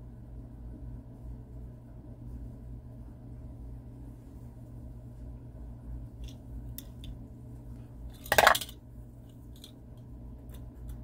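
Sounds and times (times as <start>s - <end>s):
steady low hum: 0.0s - 11.0s
metallic clatter: 8.2s - 8.8s.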